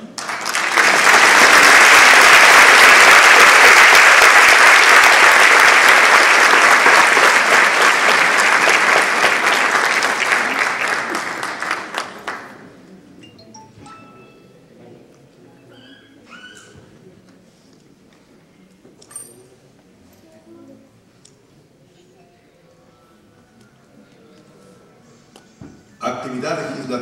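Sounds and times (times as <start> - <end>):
large audience applauding: 0.0 - 12.8.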